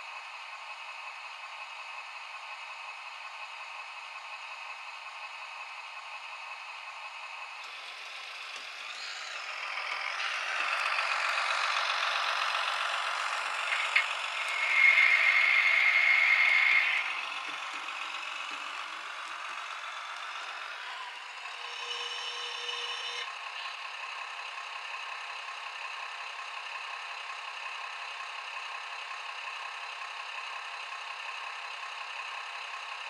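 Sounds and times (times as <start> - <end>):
model train wheels clattering: 10.3 - 19.6.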